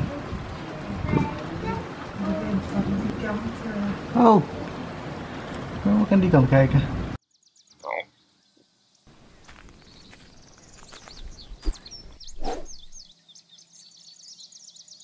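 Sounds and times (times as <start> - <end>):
birds chirping: 7.2 - 15.0.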